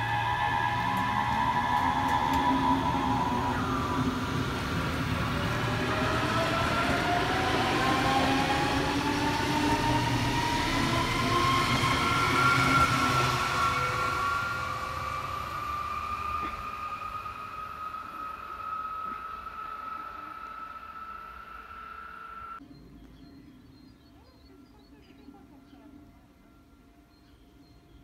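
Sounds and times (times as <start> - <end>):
electric train motor whine: 0.0 - 22.6
wheels rumbling on rails: 0.0 - 22.9.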